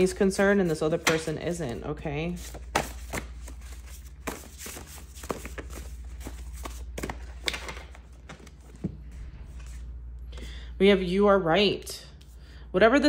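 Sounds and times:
steady low hum: 0.0 - 13.0
cards being shuffled: 2.3 - 9.9.

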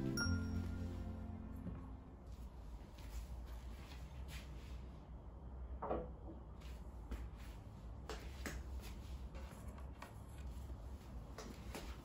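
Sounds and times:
low steady hum: 0.0 - 7.9.

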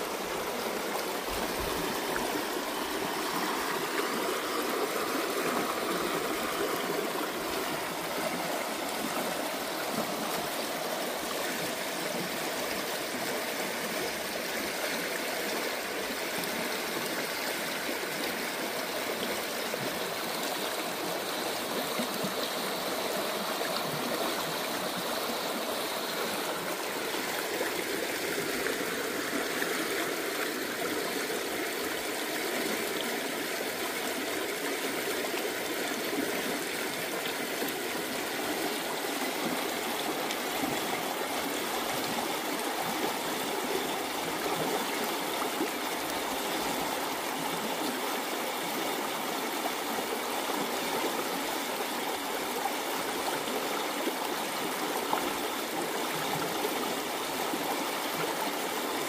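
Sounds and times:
stream babbling over rocks: 0.0 - 59.0.

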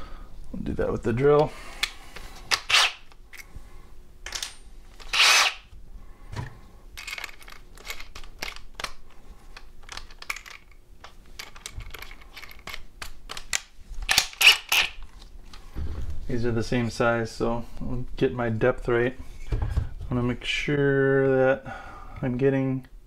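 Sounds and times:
short rasping bursts: 5.1 - 5.7.

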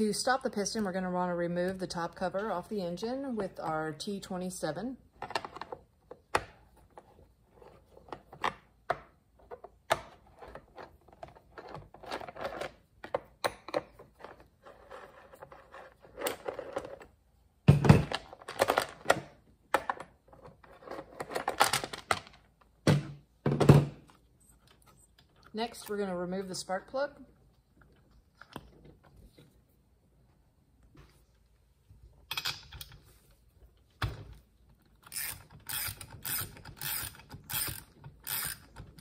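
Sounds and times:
screwdriver clicks and scrapes: 35.0 - 39.0.

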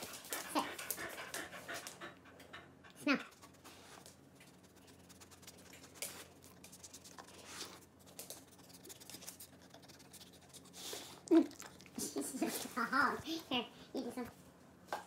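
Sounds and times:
dog scratching and clicking: 3.4 - 10.8.

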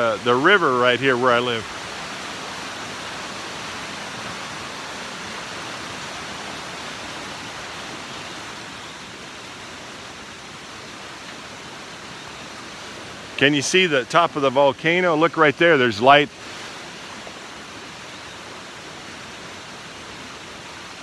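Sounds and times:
river rushing: 0.0 - 21.0.

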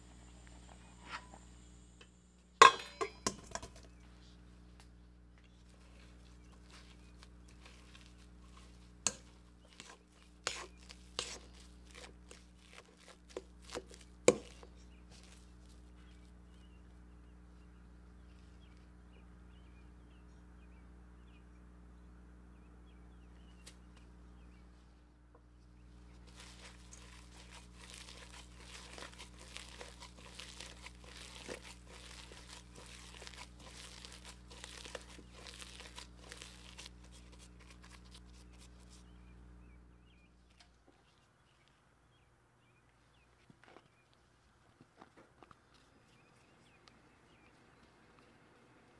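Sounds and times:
masher clinking against metal bowl: 2.6 - 3.8
squishing mashed potato: 5.4 - 16.8, 26.0 - 39.3.

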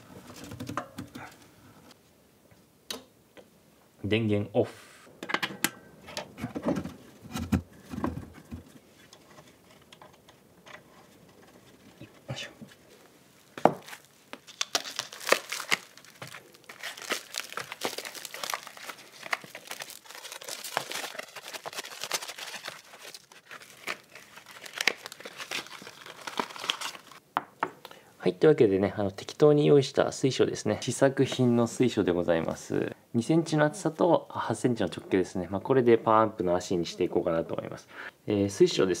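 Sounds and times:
packaging crinkling: 13.8 - 27.2.

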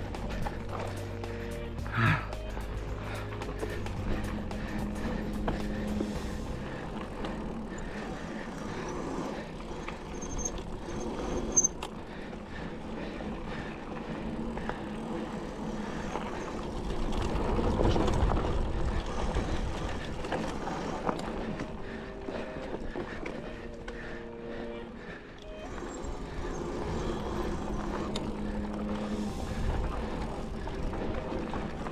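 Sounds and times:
bike tyres on dirt trail: 0.0 - 31.9.

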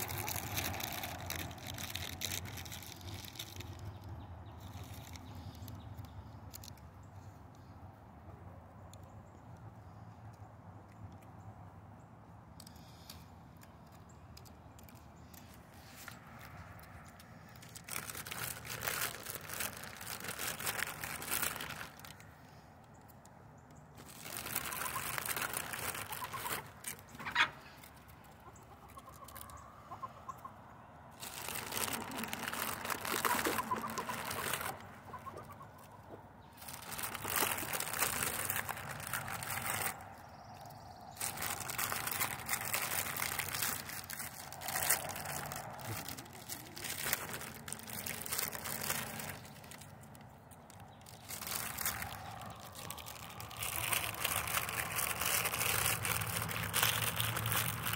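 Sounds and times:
chickens clucking: 26.0 - 31.0, 31.8 - 36.4
chicken call: 27.2 - 27.8.

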